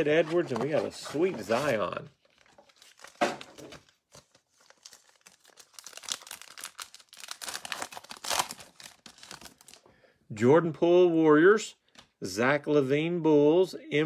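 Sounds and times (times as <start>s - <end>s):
foil wrapper crinkling and tearing: 1.0s - 9.8s.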